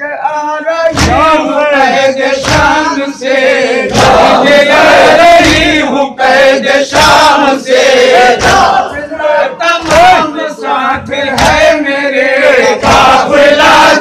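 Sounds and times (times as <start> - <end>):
men chanting in unison: 0.5 - 14.0
chest-beating thumps: 0.9 - 1.6, 2.4 - 2.9, 3.9 - 5.9, 8.2 - 9.0, 11.0 - 11.8.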